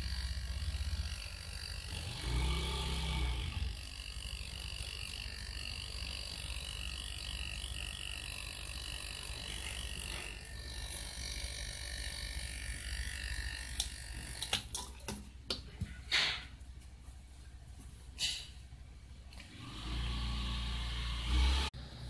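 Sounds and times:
refrigerator compressor humming: 0.0 - 17.0.

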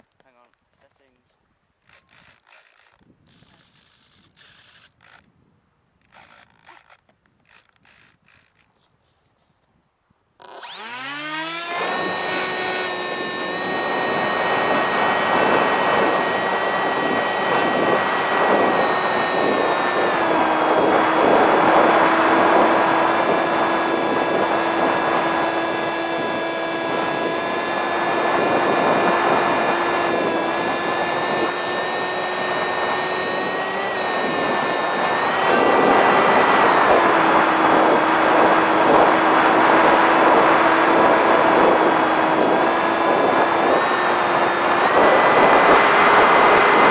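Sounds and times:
electric motor and propeller whine: 1.9 - 5.3, 6.0 - 8.7, 10.4 - 46.9
gusty wind: 11.6 - 46.9.

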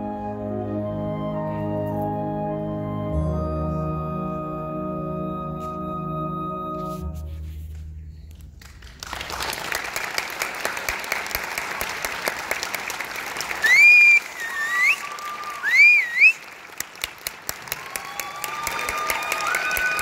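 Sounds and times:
audience applause: 8.6 - 20.0
audience whistling: 13.5 - 16.6, 17.7 - 20.0.

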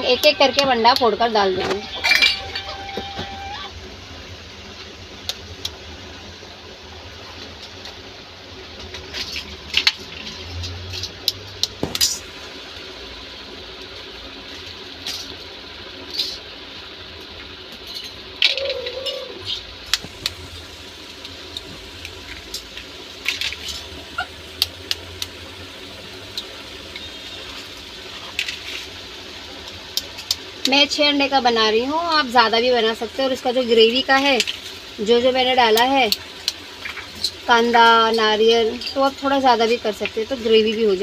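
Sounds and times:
steady background hiss: 10.7 - 41.0.

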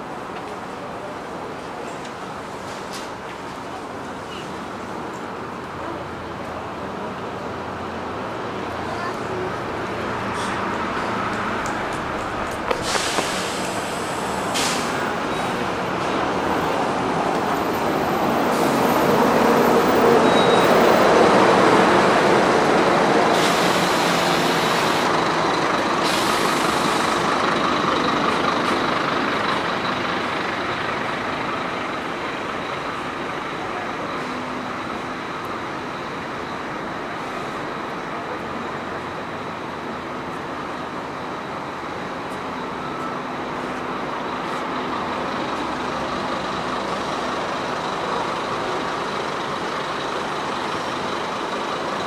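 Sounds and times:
bus driving past: 0.0 - 52.0
compressed air hisses: 12.8 - 14.9.

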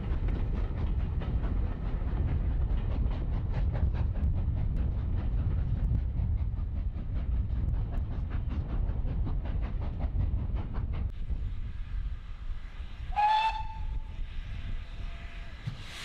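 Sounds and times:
steam train running past: 0.0 - 16.0.

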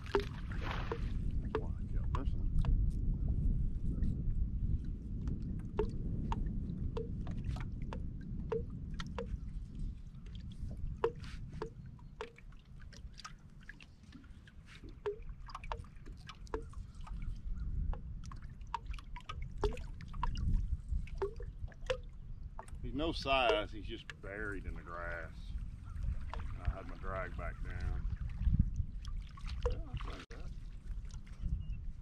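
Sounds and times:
waves lapping against hull: 0.0 - 32.0
irregular clicks and ticks: 15.0 - 16.8.

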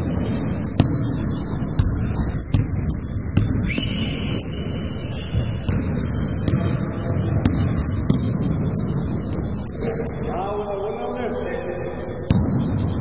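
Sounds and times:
basketball bouncing: 0.0 - 9.4, 12.3 - 13.0
sneakers squeaking on wooden floor: 0.4 - 10.3.

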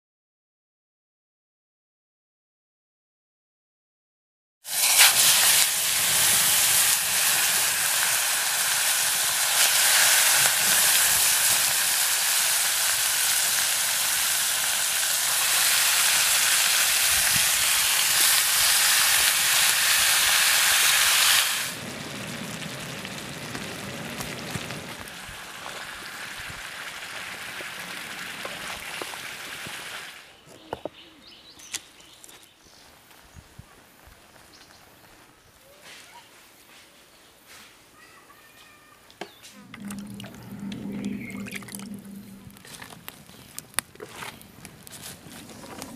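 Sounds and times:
food sizzling in hot oil: 4.7 - 30.2.

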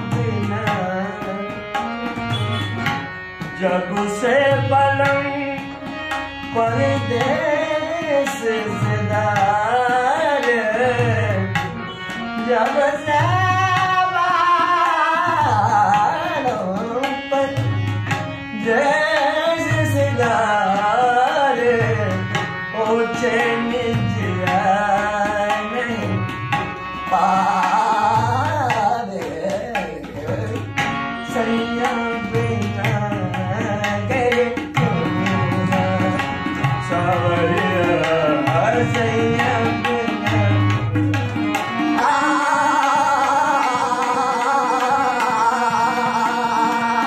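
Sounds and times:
harmonium held tones: 0.0 - 47.0
man singing: 0.0 - 47.0
tabla beat: 0.0 - 47.0.

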